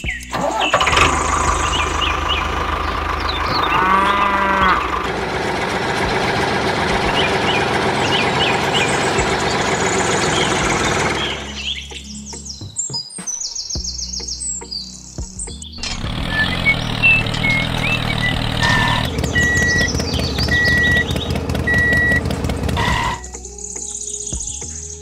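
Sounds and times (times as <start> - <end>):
birds chirping: 0.0 - 25.0
motor running: 0.4 - 11.6, 15.8 - 23.3
cow mooing: 3.4 - 5.1.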